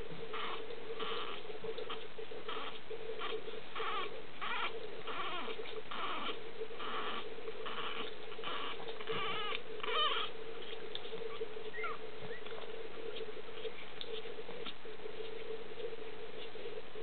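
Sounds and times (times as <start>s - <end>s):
steady hum: 0.0s - 17.0s
puppies squeaking and whimpering: 0.3s - 13.8s.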